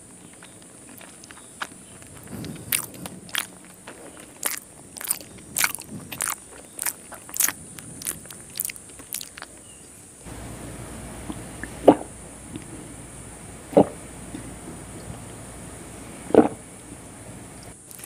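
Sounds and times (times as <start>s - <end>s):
background noise: 0.0s - 18.0s
gulping water: 0.0s - 18.0s
chewing with wet mouth clicks: 0.1s - 9.8s, 17.6s - 18.0s.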